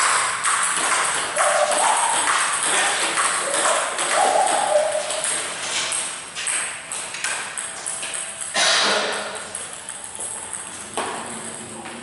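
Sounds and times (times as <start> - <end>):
table tennis ball clicking: 0.0 - 8.5.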